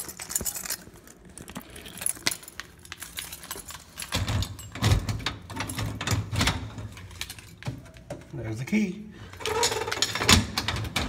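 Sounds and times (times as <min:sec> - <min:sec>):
keys jangling: 0:00.0 - 0:07.6.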